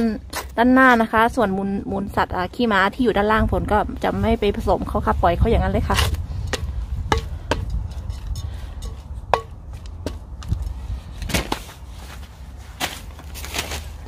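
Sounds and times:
soil rustling: 4.3 - 14.0.

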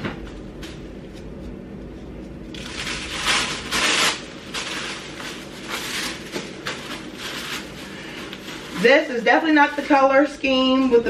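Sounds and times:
wrapping paper crinkling: 2.5 - 10.0.

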